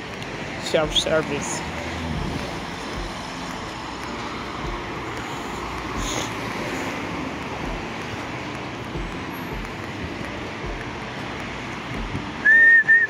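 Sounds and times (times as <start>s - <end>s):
road traffic: 0.0s - 13.0s
soft low thumps: 2.2s - 5.2s, 7.6s - 8.1s, 8.9s - 10.9s.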